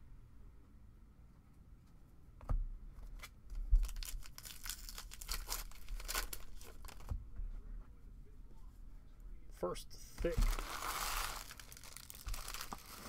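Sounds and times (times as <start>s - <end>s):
foil wrapper tearing and crinkling: 3.8s - 7.1s, 10.3s - 13.0s.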